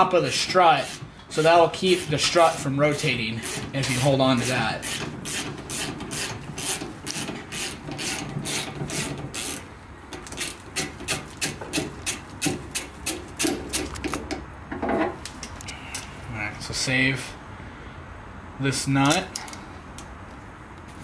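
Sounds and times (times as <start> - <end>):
ratchet wrench clicking: 4.4 - 9.6.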